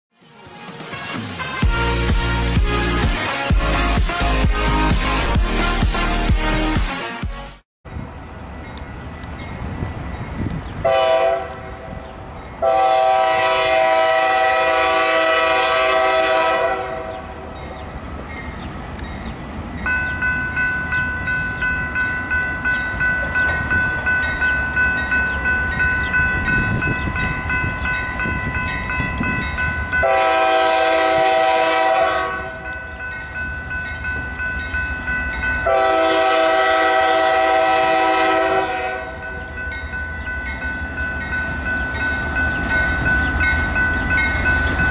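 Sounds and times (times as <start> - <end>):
train rumbling: 7.9 - 44.9
crossing bell ringing: 8.0 - 44.9
locomotive air horn blasts: 10.8 - 11.9, 12.6 - 17.5, 30.0 - 32.7, 35.6 - 39.3.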